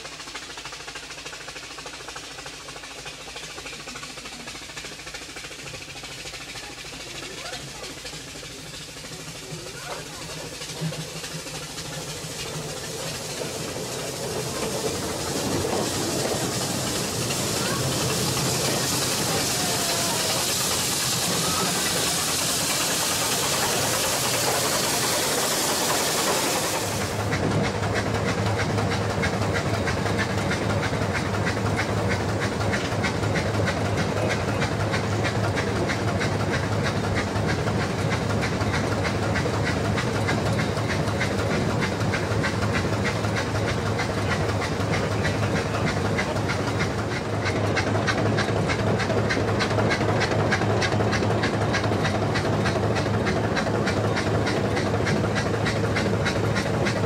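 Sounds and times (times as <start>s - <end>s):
loud steady hiss: 7.8s - 27.4s.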